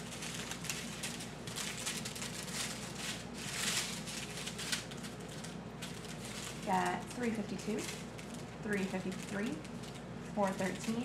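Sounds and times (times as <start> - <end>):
plastic packets crinkling: 0.0 - 11.0.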